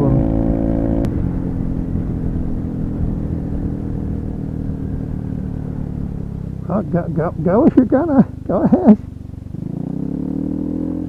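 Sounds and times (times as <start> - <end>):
scooter engine running: 0.0 - 11.0.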